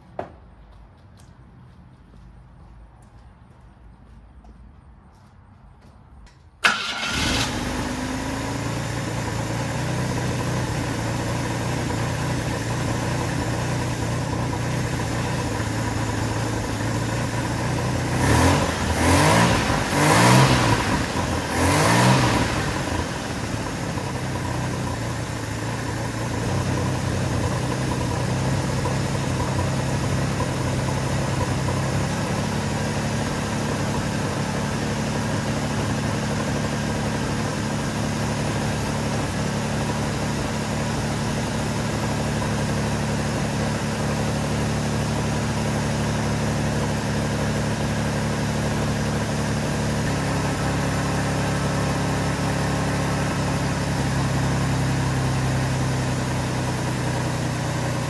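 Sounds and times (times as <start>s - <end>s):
car engine starting and running: 6.6s - 58.0s
engine revving: 6.7s - 9.3s, 18.0s - 24.6s.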